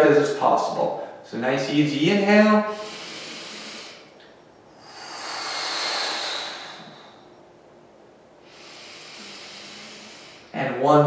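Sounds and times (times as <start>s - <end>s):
quiet breath: 2.7s - 7.4s, 8.4s - 10.6s
person exhaling through mouth: 4.8s - 7.3s.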